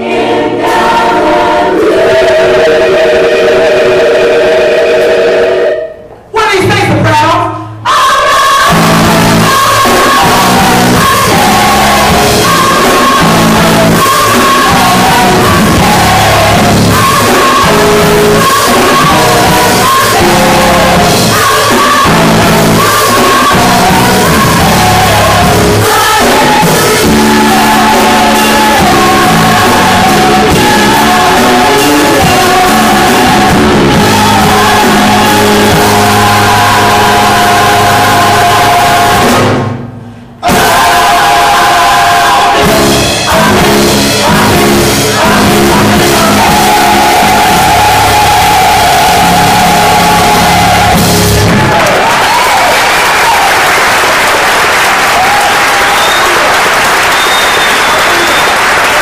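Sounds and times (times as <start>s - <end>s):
gospel choir singing: 0.0s - 6.2s, 7.8s - 59.0s
keyboard: 0.0s - 52.0s
bass guitar: 8.6s - 52.5s.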